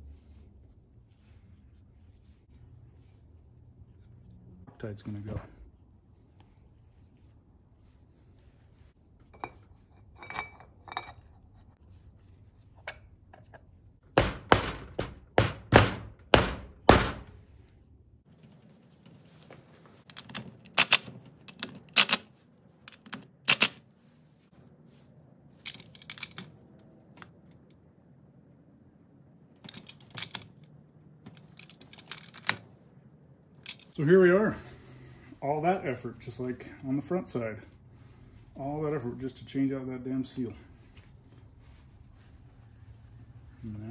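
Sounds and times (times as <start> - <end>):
hard knocks on metal: 14.1 - 17.3
metal parts clinking: 25.7 - 26.5, 31.4 - 32.6.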